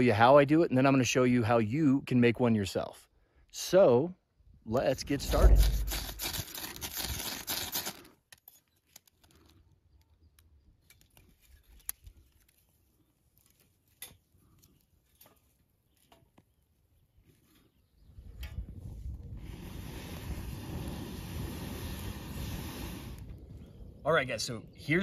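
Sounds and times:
scraping tinder: 5.1 - 8.0.

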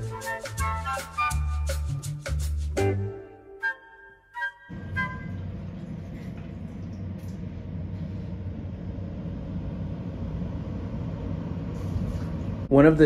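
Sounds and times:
low room rumble: 4.8 - 13.0.

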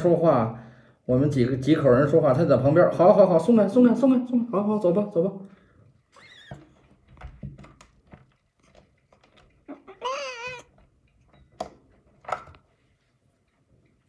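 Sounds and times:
kitten meowing: 9.7 - 10.7.

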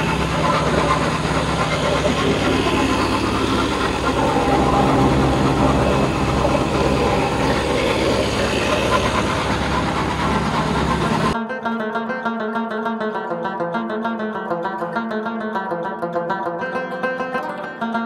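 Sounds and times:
rushing noise: 0.0 - 11.4
vehicle engine hum: 0.0 - 11.4.

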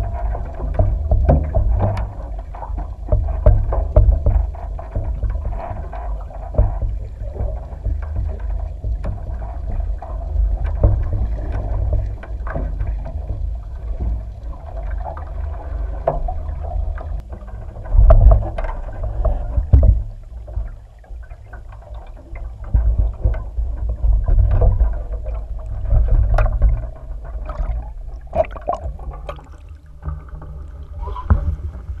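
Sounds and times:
water sloshing underwater rumble: 0.0 - 32.0
knocks and thumps: 0.2 - 2.2, 3.0 - 9.4, 17.2 - 20.8, 22.2 - 32.0.

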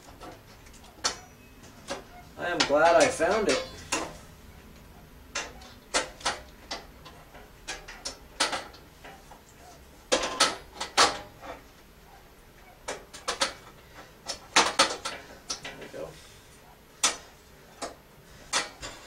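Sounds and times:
metal stove parts clinking: 1.0 - 4.2, 10.1 - 11.6, 17.0 - 19.0.

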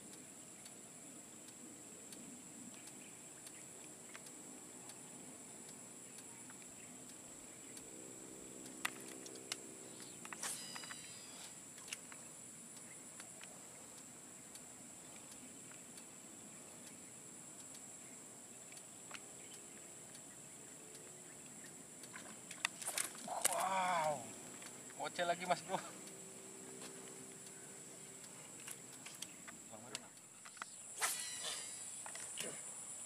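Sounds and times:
faint low hum: 0.0 - 33.0
insect chorus drone: 0.0 - 33.0
sharp clicks: 8.6 - 16.1, 27.0 - 32.5.

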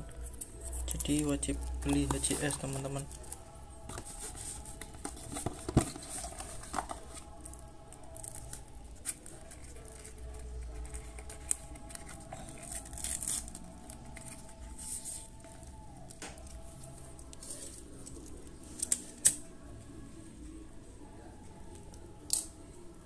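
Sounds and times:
cellophane wrapper crinkling: 0.6 - 16.6
foil lining tearing: 12.6 - 13.6.

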